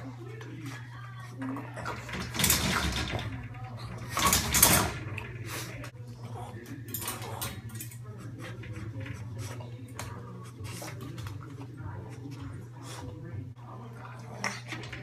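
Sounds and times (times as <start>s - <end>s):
metal gate bars rattling: 1.8s - 5.9s.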